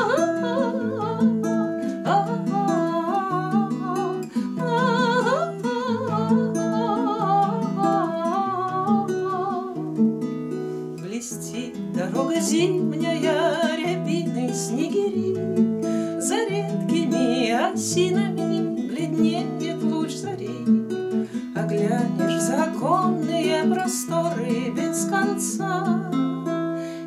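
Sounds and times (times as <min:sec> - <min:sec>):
woman singing with vibrato: 0:00.0 - 0:09.9, 0:11.0 - 0:20.7, 0:21.5 - 0:26.4
acoustic guitar: 0:00.0 - 0:27.0.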